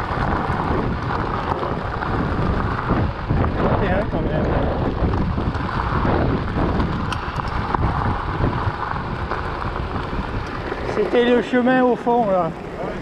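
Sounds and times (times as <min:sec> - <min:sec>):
bike rattling: 0:00.0 - 0:13.0
tyres crunching over stones: 0:00.0 - 0:13.0
wind on microphone: 0:00.0 - 0:13.0.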